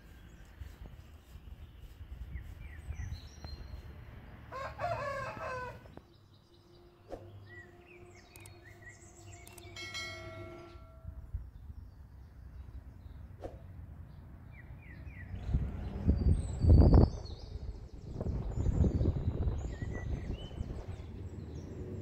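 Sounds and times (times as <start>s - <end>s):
small birds chirping: 0.0s - 4.4s, 5.8s - 10.8s, 11.4s - 22.0s
rooster crowing: 4.5s - 6.0s.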